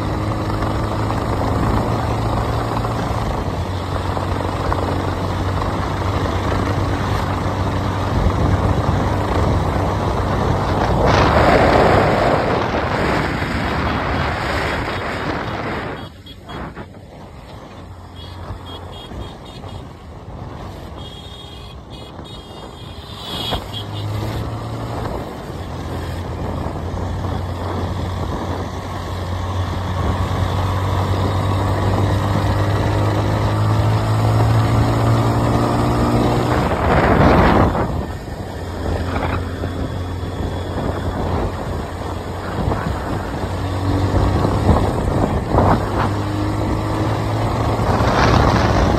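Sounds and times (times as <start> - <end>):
motorcycle engine running: 0.0 - 48.9
truck passing: 8.1 - 48.9
loud rush of noise: 8.5 - 17.4.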